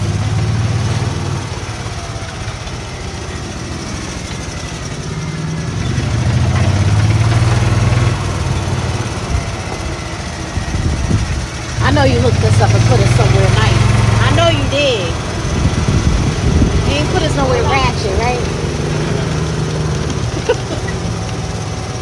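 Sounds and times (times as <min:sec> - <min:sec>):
golf cart engine running: 0:00.0 - 0:22.0.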